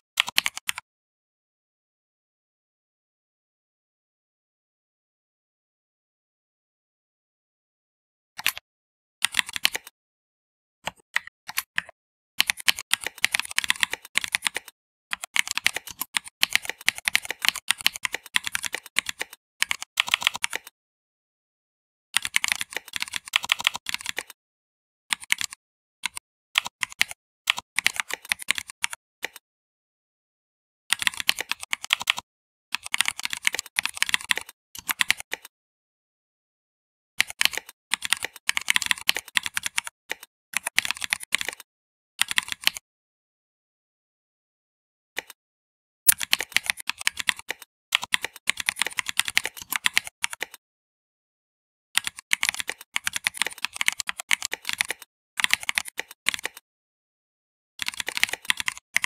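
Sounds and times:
typing on computer keyboard: 0:00.2 - 0:00.8, 0:08.4 - 0:08.6, 0:09.2 - 0:09.9, 0:10.9 - 0:20.7, 0:22.2 - 0:24.4, 0:25.1 - 0:29.4, 0:30.9 - 0:35.5, 0:37.2 - 0:42.8, 0:46.1 - 0:50.6, 0:52.0 - 0:56.6, 0:57.8 - 0:59.0.

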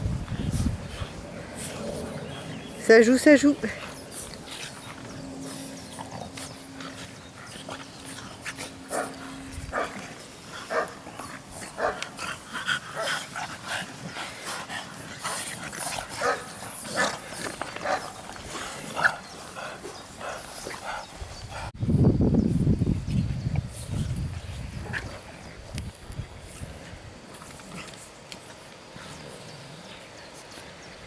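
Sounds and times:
young dogs yapping and barking: 0:00.0 - 0:21.7.

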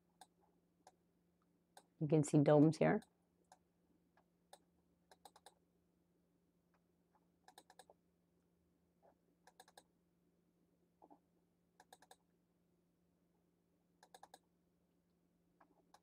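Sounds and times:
faint steady hum: 0:00.0 - 0:16.0
computer mouse clicks: 0:00.2 - 0:01.0, 0:04.5 - 0:05.6, 0:07.4 - 0:08.0, 0:09.4 - 0:09.9, 0:11.8 - 0:12.3, 0:14.0 - 0:14.5, 0:15.6 - 0:16.0.

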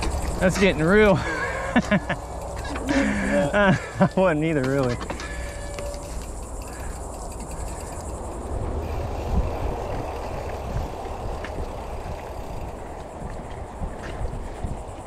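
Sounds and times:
bike rattling: 0:00.0 - 0:15.0
tyres rumbling on dirt: 0:00.0 - 0:15.0.

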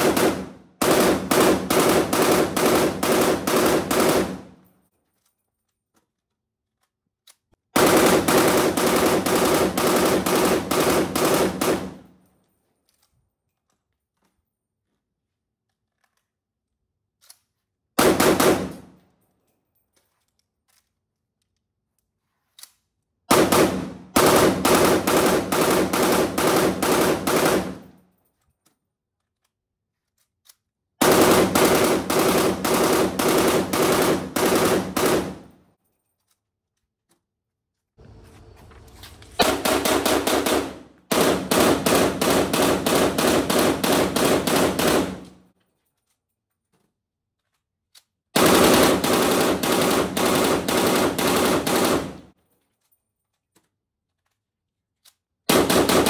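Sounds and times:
automatic rifle bursts: 0:23.3 - 0:28.0, 0:31.0 - 0:35.5, 0:39.0 - 0:45.4, 0:48.4 - 0:52.2.

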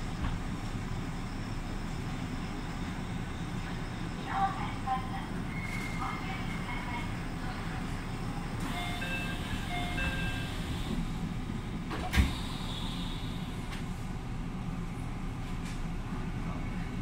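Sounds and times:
low train hum: 0:00.0 - 0:17.0
sliding doors shutting thud: 0:11.9 - 0:12.5.

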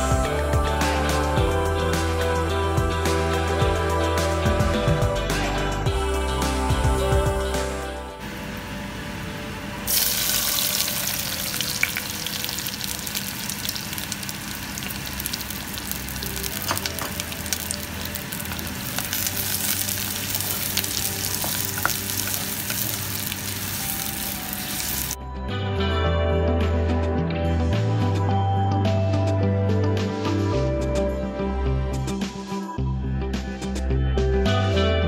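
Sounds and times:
onions sizzling in hot oil: 0:09.9 - 0:25.2
sharp crackles of oil: 0:09.9 - 0:25.2
wooden spoon stirring: 0:14.8 - 0:25.1.

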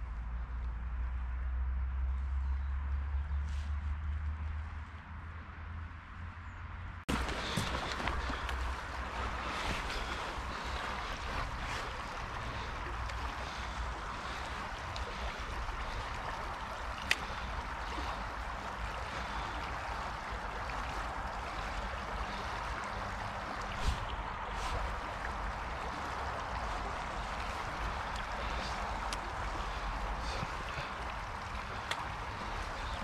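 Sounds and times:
stream flowing: 0:07.1 - 0:33.0.

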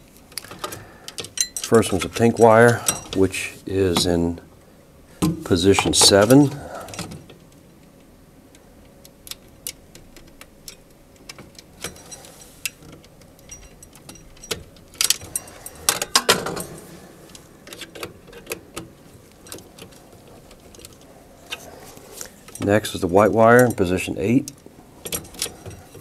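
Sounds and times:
rustling and clacking: 0:09.3 - 0:23.9.

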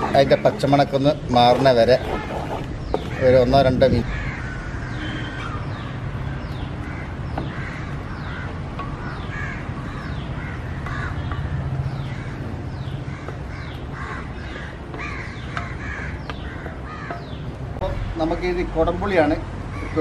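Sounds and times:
crows cawing: 0:04.0 - 0:17.7, 0:19.7 - 0:20.0.

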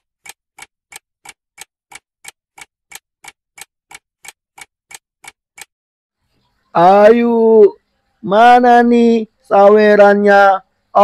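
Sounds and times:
steady sharp ticking: 0:00.0 - 0:05.7.

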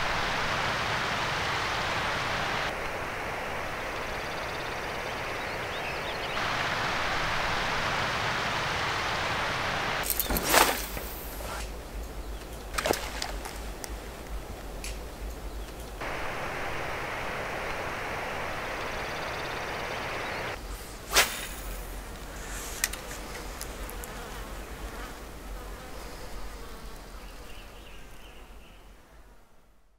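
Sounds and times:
steady hiss: 0:00.0 - 0:28.6
flying insects buzzing: 0:00.0 - 0:29.6.

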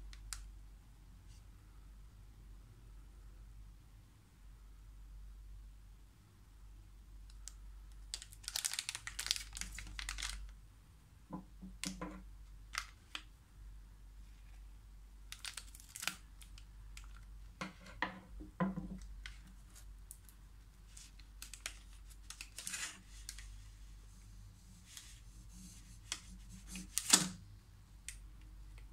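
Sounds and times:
plastic wrapper crinkling: 0:08.1 - 0:10.5, 0:12.7 - 0:13.3, 0:15.3 - 0:17.3, 0:19.2 - 0:23.5.

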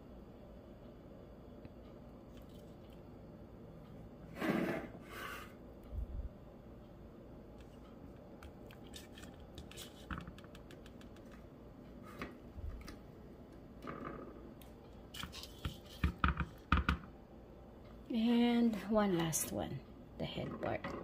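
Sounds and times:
light clicks and scratches: 0:07.6 - 0:13.0.

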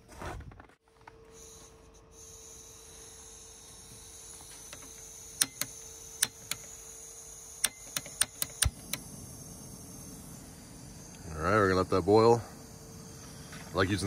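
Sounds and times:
piezo igniter clicking: 0:04.4 - 0:06.8, 0:07.6 - 0:10.2
gas burner igniting pop: 0:07.6 - 0:09.1
gas flame rushing: 0:07.6 - 0:14.0.

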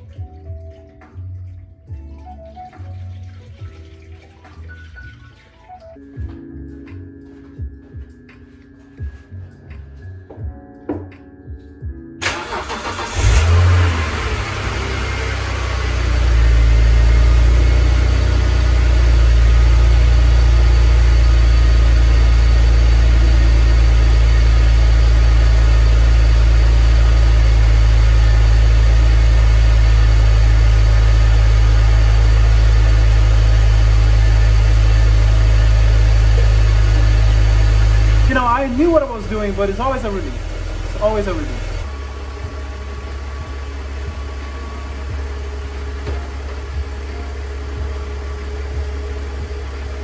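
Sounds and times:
car engine idling: 0:12.2 - 0:50.0.

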